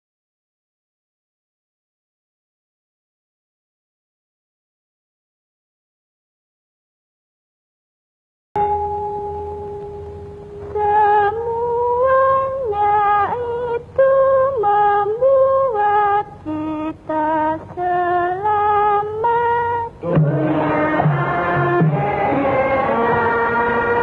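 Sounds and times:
gamelan ensemble with drums: 0:08.6 - 0:10.8, 0:20.0 - 0:24.0
woman singing slow melody: 0:08.6 - 0:24.0.

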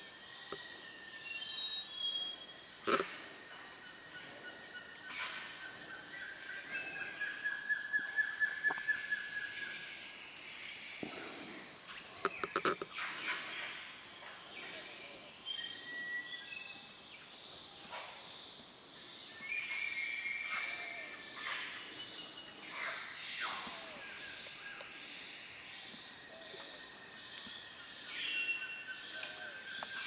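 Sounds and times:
high-pitched insect chorus: 0:00.0 - 0:30.0.

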